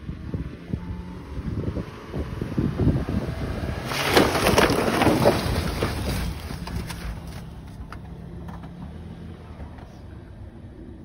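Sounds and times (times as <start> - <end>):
car engine humming: 0.0 - 11.0
tyres splashing through mud: 3.5 - 7.8.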